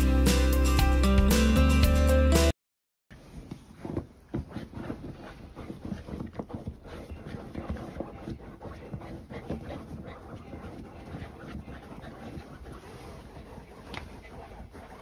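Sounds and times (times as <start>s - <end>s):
dog scratching fabric bed: 3.6s - 15.0s.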